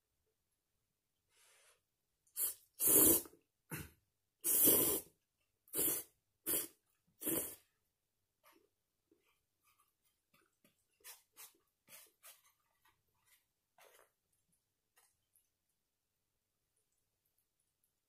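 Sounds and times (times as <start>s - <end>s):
person slurping noodles: 2.4s - 5.1s, 5.7s - 7.7s.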